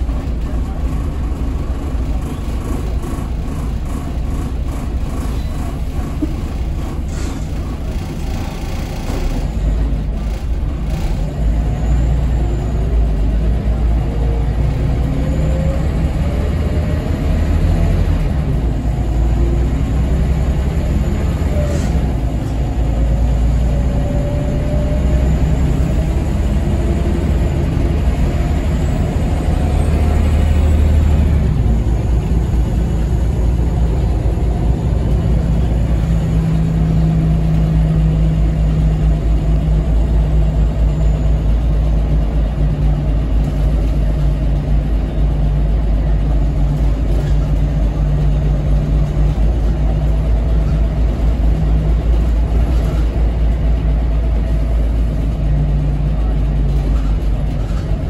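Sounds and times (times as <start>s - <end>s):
bus diesel engine rumbling: 0.0s - 58.0s.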